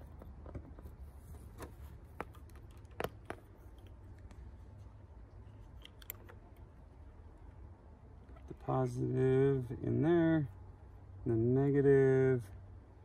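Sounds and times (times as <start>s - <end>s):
connectors clicking and tapping: 1.6s - 4.4s, 5.3s - 6.7s.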